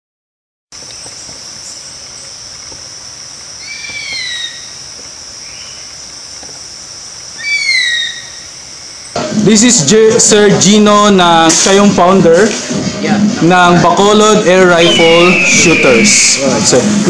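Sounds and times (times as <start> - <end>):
high-pitched insect drone: 0.8 - 11.3, 14.0 - 17.0
bird of prey screeching: 3.6 - 4.8, 7.4 - 9.1, 14.8 - 16.4.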